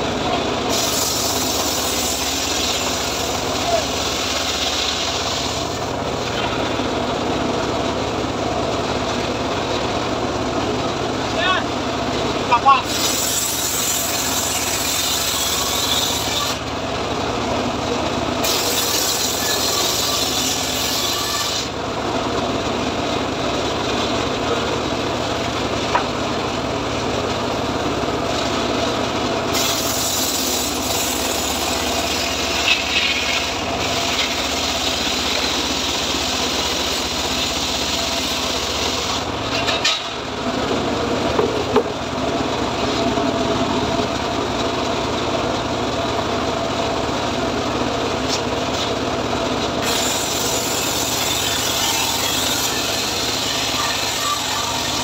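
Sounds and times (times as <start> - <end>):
engine running steadily: 0.0 - 55.0
saw blade cutting wood: 0.7 - 6.5, 12.7 - 16.7, 18.4 - 21.8, 29.5 - 40.2, 49.7 - 55.0.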